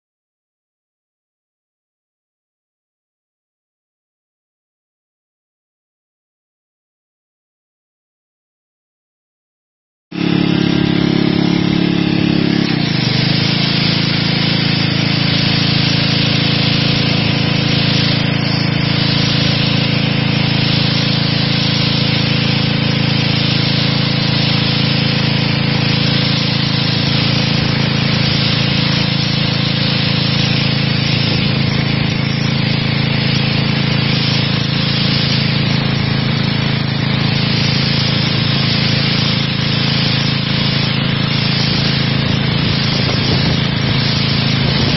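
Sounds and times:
pressure washer engine: 10.1s - 44.9s
water jet hissing on stone: 10.2s - 44.9s.

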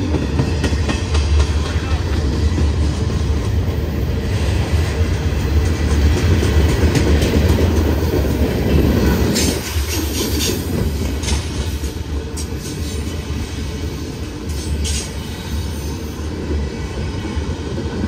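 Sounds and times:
freight cars rumbling on rails: 0.0s - 18.0s.

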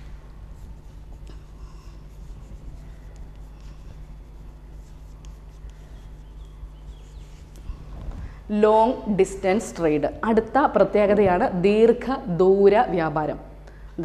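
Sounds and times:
steady low hum: 0.0s - 14.0s
chalk scratching on blackboard: 0.5s - 7.6s.

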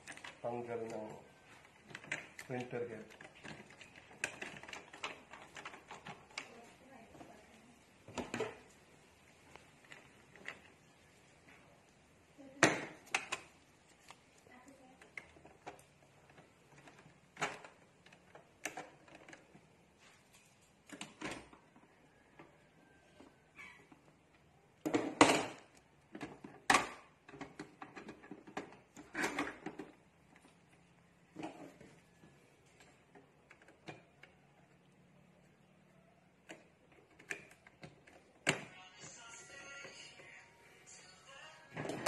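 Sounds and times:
plastic printer parts clicking: 1.8s - 6.7s, 31.4s - 38.7s
plastic clicks and rattles in printer: 1.8s - 6.8s, 20.7s - 31.9s, 32.6s - 38.7s.

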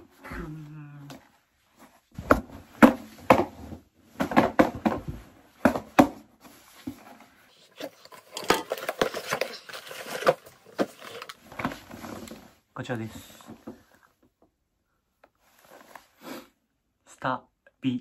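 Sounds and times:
sharp knocks of box contents: 4.2s - 6.2s
cardboard box crackling open: 7.7s - 11.4s.

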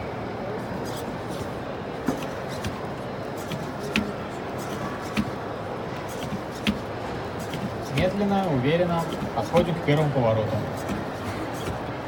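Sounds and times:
hall hubbub: 0.0s - 12.0s
robot feet tapping: 2.1s - 5.4s, 6.1s - 8.2s, 9.0s - 9.8s, 10.6s - 11.8s.

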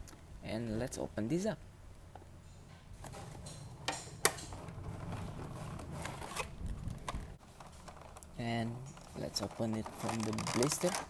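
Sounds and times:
cardboard and plastic rustling: 4.4s - 11.0s.

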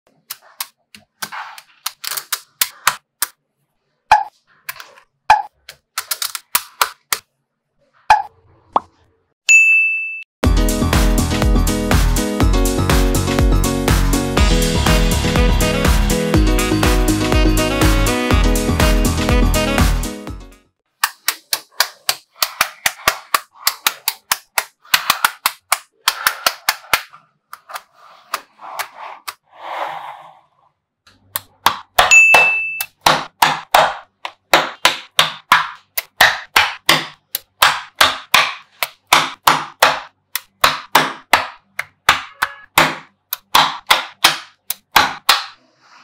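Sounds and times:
short ringing ding: 9.5s - 10.3s, 32.1s - 32.9s.

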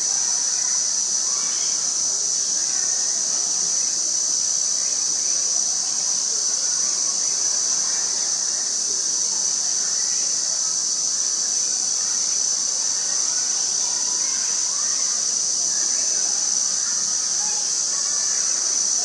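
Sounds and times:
insects buzzing: 0.0s - 19.0s.

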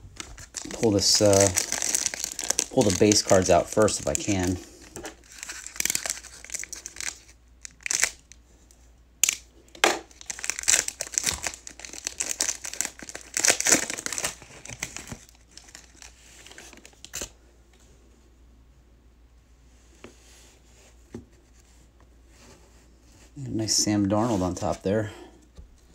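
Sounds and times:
foil wrapper crinkling and tearing: 0.2s - 8.4s, 10.1s - 17.3s.

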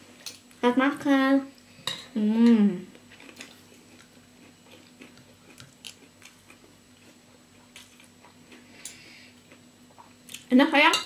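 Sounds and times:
people chewing: 2.9s - 10.4s.

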